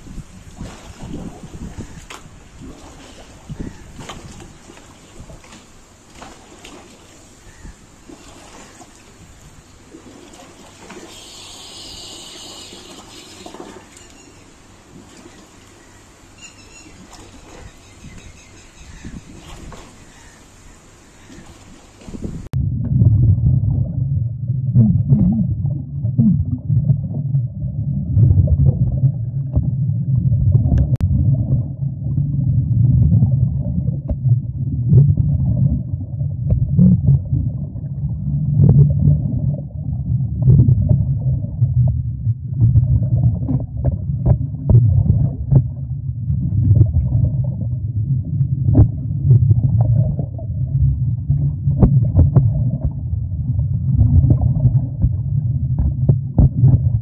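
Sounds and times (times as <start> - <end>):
muffled underwater rumble: 0.0 - 5.7, 7.4 - 7.9, 21.1 - 57.0.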